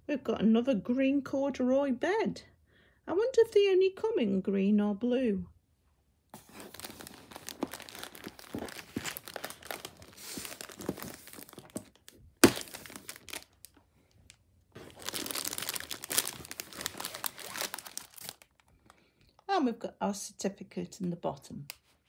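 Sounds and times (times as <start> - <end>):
plastic packaging crinkling: 6.4 - 19.0.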